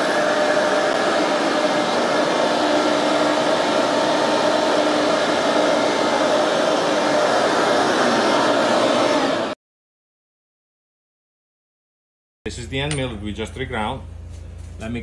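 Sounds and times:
grinder whirring: 0:00.0 - 0:09.6.

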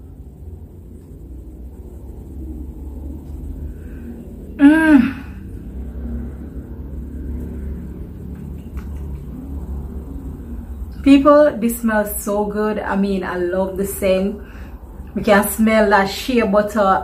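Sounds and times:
low background rumble: 0:00.0 - 0:17.0
woman's appreciative vocal sound: 0:04.6 - 0:05.4.

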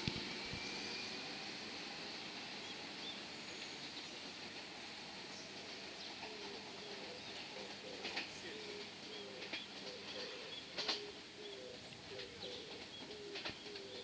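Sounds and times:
pigeons cooing: 0:06.2 - 0:14.0.

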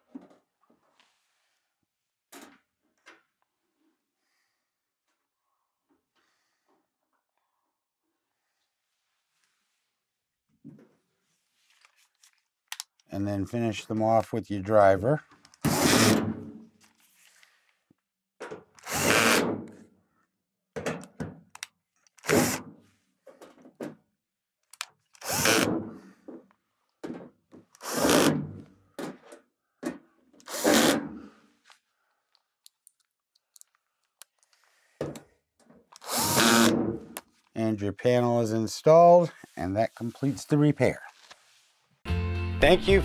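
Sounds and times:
drill driving screws into sheet metal: 0:15.6 - 0:16.5, 0:18.8 - 0:19.8, 0:22.2 - 0:22.7, 0:25.2 - 0:25.8, 0:27.8 - 0:28.7, 0:30.4 - 0:31.2, 0:36.0 - 0:37.0.

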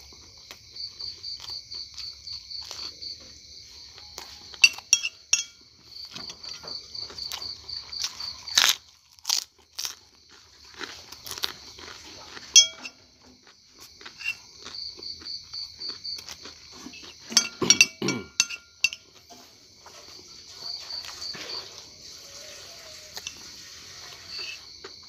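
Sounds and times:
crickets chirping: 0:00.0 - 0:25.0
metal spoon scraping ceramic plate: 0:04.6 - 0:05.6, 0:12.5 - 0:13.0, 0:14.1 - 0:14.4, 0:16.9 - 0:19.4, 0:22.4 - 0:24.6.

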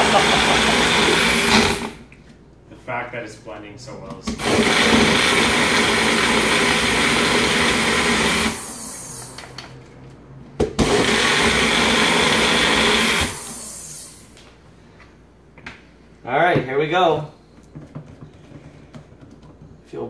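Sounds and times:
blender running: 0:00.0 - 0:02.1, 0:04.3 - 0:09.6, 0:10.8 - 0:14.4.

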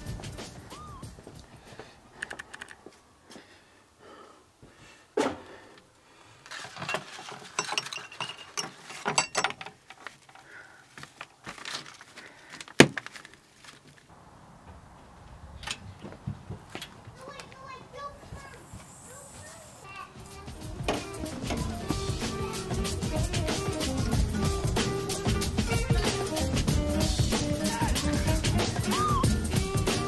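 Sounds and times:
small metal clinks: 0:06.8 - 0:10.4
paper rustling: 0:11.0 - 0:14.1.

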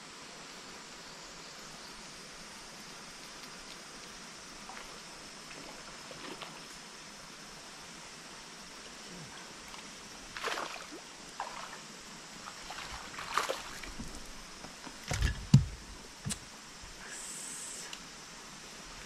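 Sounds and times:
heavy thumps on deck: 0:15.1 - 0:16.4
water and air hiss: 0:15.4 - 0:19.0.

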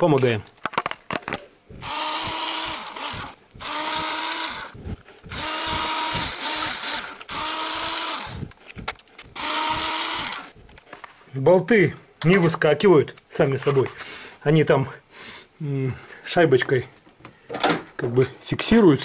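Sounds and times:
cordless drill whining: 0:01.7 - 0:10.8.

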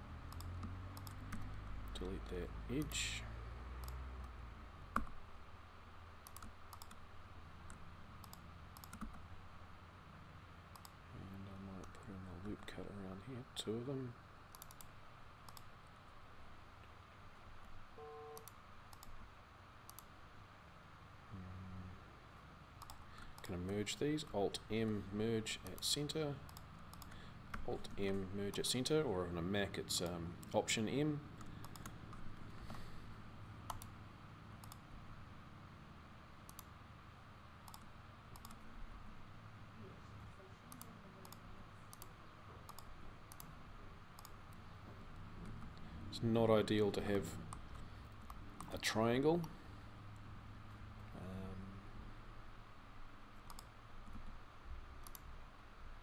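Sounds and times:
low steady room hum: 0:00.0 - 0:56.0
mouse and keyboard clicks: 0:00.3 - 0:01.6, 0:37.7 - 0:38.6, 0:53.4 - 0:54.2.

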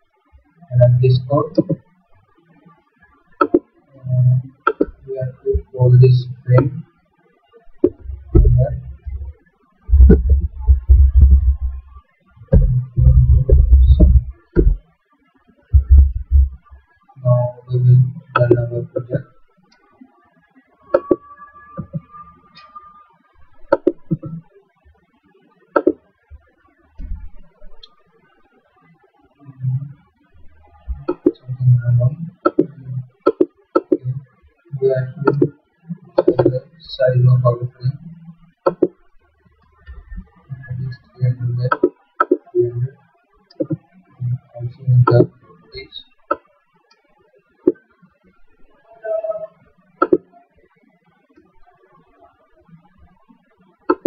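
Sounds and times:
faint steady tone: 0:00.0 - 0:54.0
faint low knocks: 0:07.8 - 0:09.3, 0:09.9 - 0:14.8, 0:15.7 - 0:16.8.

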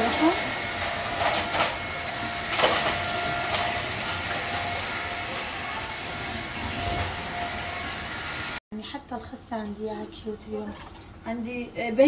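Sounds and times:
tap water running into metal sink: 0:01.2 - 0:08.1
greens rinsed and handled: 0:09.6 - 0:11.6.

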